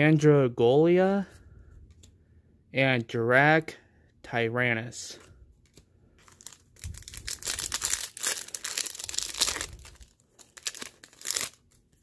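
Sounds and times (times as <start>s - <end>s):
foil wrapper tearing and crinkling: 6.2s - 12.0s.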